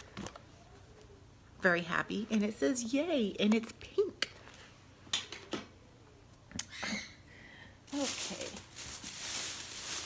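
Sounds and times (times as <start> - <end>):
packaging rustling: 7.9 - 10.0.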